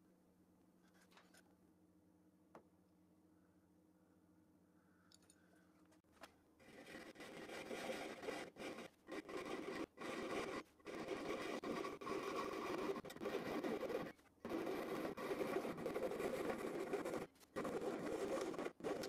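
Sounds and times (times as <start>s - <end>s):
fret saw cutting aluminum: 6.6s - 19.0s.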